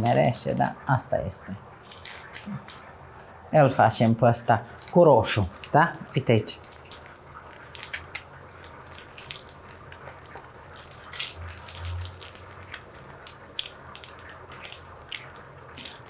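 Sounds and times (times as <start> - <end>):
frosting squeezed from piping bag: 1.8 - 3.0, 4.7 - 16.0.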